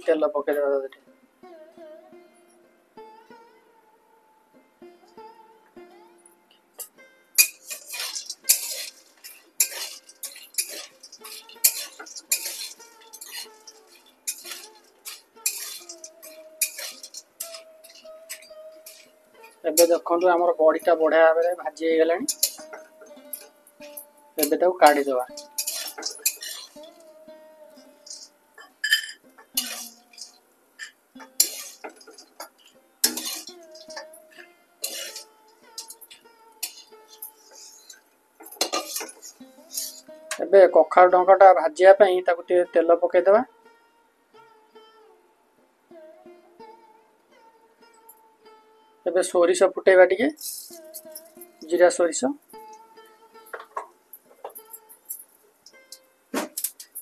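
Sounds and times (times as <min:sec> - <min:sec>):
metal spatula scraping a wok: 0:06.8 - 0:21.6, 0:22.2 - 0:40.4, 0:50.4 - 0:51.8
frying in oil: 0:07.4 - 0:21.6, 0:22.2 - 0:27.1, 0:27.8 - 0:40.4, 0:50.4 - 0:51.8, 0:52.5 - 0:57.0.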